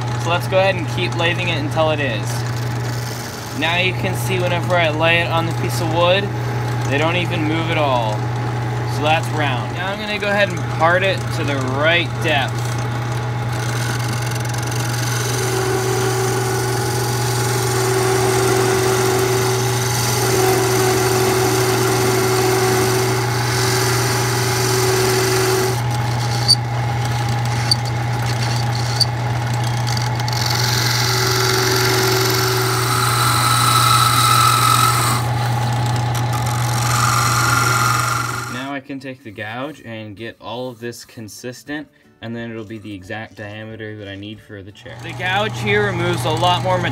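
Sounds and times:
lathe motor running: 0.0s - 38.7s, 44.9s - 46.9s
tool cutting spinning wood: 0.0s - 38.8s, 44.9s - 46.9s.

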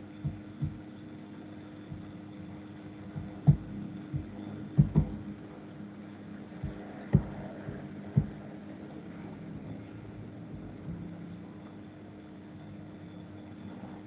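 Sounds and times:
low hum: 0.0s - 14.0s
soft low thumps: 0.2s - 0.9s, 1.8s - 5.5s, 6.6s - 8.6s, 9.5s - 11.6s.

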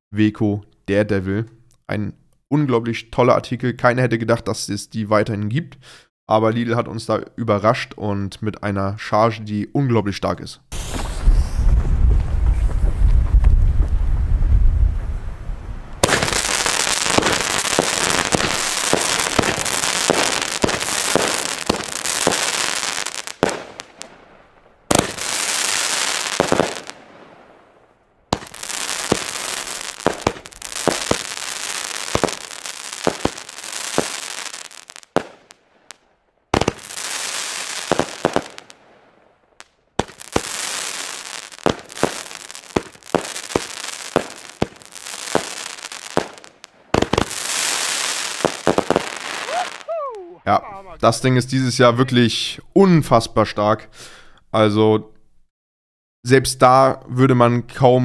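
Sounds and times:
firework battery firing: 10.7s - 14.0s, 16.0s - 49.9s.

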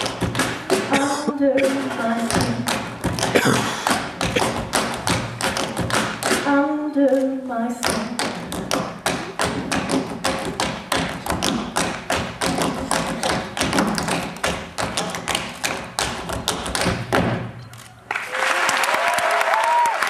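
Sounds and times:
tap shoes striking stage floor: 0.0s - 6.6s, 7.8s - 17.6s.

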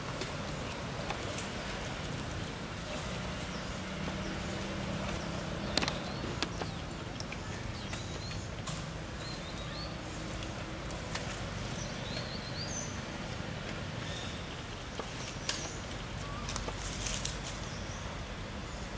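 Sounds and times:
background hum and hiss: 0.0s - 18.9s
sharp clicks: 5.7s - 8.1s.

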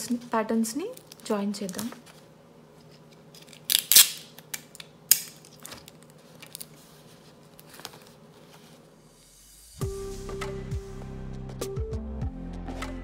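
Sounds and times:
tape crackling on paper: 0.0s - 8.8s
adhesive tape ripping: 3.4s - 4.5s.

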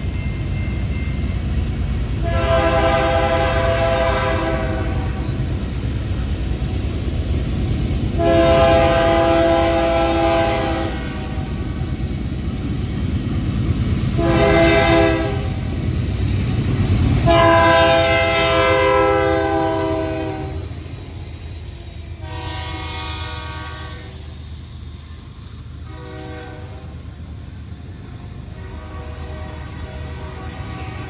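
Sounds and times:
locomotive air horn blasts: 2.2s - 5.4s, 8.2s - 11.5s, 14.1s - 15.6s, 17.2s - 20.7s, 22.2s - 24.2s, 25.8s - 27.0s, 28.5s - 31.0s.

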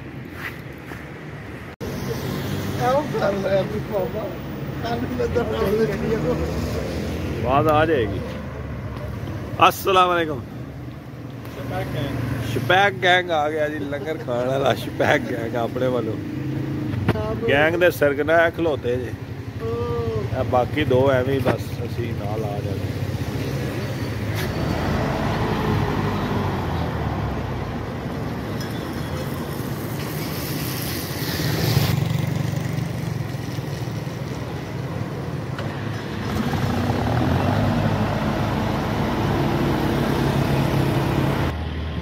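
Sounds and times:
road traffic engines: 0.0s - 42.0s
vehicle passing: 0.4s - 10.4s, 22.0s - 28.5s, 29.2s - 41.8s.

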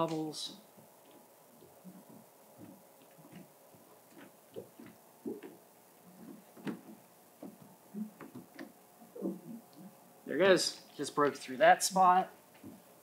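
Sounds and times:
hands rubbing wet film: 0.8s - 9.5s.

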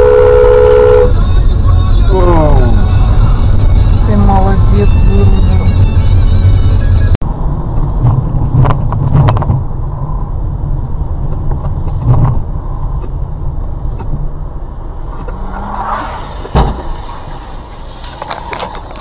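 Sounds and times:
car engine and road rumble: 0.0s - 19.0s
sharp thump: 16.4s - 17.1s.

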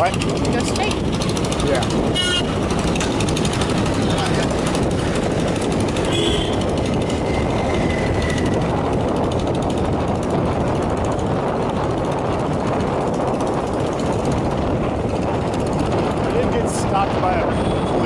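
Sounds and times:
motorbike engine running: 0.0s - 18.0s
road rumble: 0.0s - 18.0s
wind on microphone: 0.0s - 18.0s.

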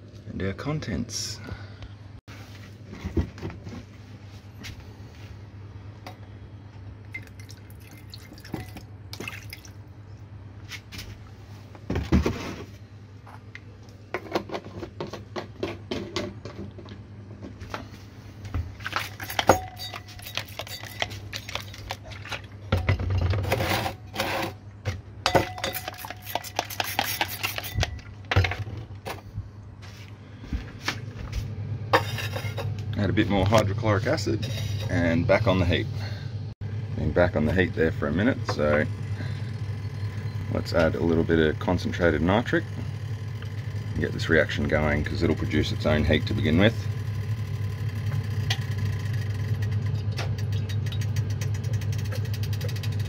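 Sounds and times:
steady low hum: 0.0s - 53.0s
glass and bottle clinks: 19.2s - 21.2s, 25.3s - 26.4s.

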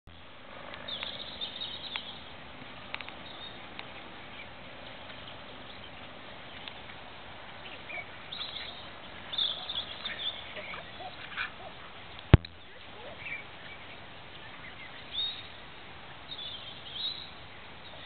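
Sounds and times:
outdoor background noise: 0.0s - 18.0s
birds chirping: 0.1s - 18.0s.

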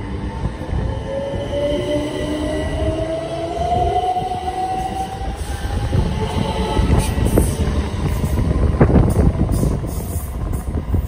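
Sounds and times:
train wheels rumbling: 0.0s - 11.0s.

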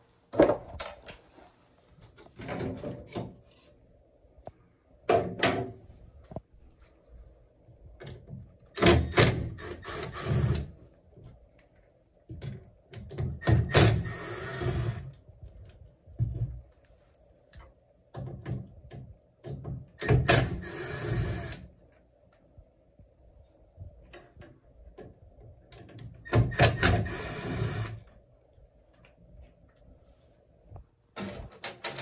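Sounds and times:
cordless drill spinning: 9.6s - 10.7s, 14.0s - 15.1s, 20.6s - 21.6s, 26.8s - 28.0s
parts clicking and knocking: 31.2s - 32.0s.

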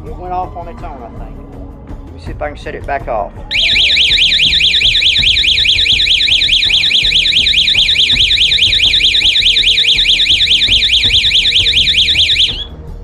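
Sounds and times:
alarm siren warbling: 3.5s - 12.7s.

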